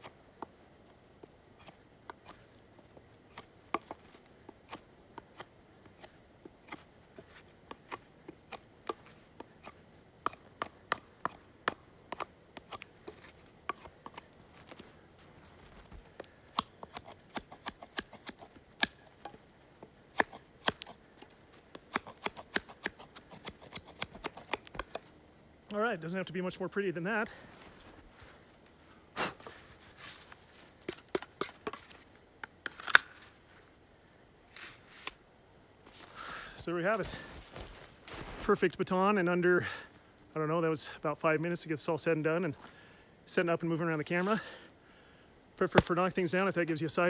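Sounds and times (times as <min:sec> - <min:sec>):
knife scraping bark off branch: 0:01.6 - 0:02.6, 0:12.1 - 0:14.9, 0:16.5 - 0:19.4, 0:20.1 - 0:25.1, 0:34.5 - 0:35.2.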